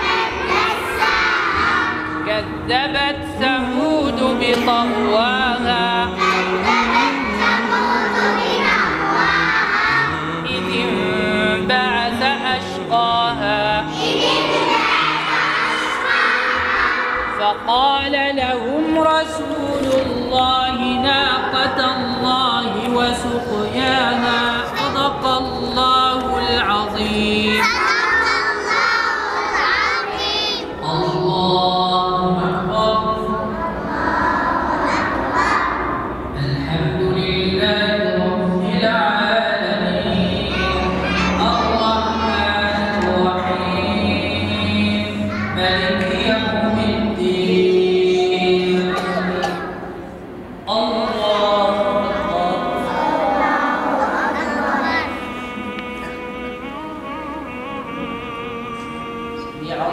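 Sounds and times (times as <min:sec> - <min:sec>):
group of voices chanting: 0:00.0 - 0:02.2, 0:06.2 - 0:10.5, 0:13.9 - 0:17.5, 0:40.4 - 0:43.9
children chanting in unison: 0:00.0 - 0:02.3, 0:06.0 - 0:10.5, 0:13.9 - 0:17.5, 0:27.3 - 0:31.5, 0:33.2 - 0:36.5, 0:40.2 - 0:46.0, 0:50.7 - 0:56.4.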